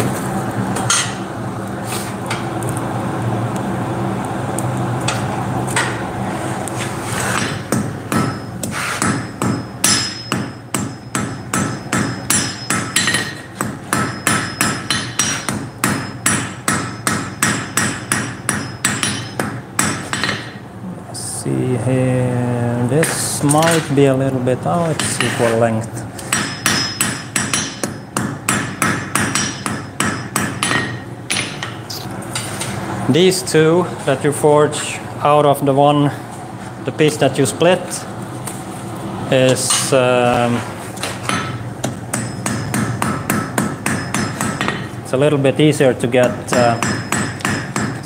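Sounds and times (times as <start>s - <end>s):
steady hum: 0.0s - 48.0s
hammer striking metal on anvil: 0.9s - 1.2s, 7.4s - 20.6s, 26.3s - 31.8s, 41.0s - 45.0s, 46.2s - 48.0s.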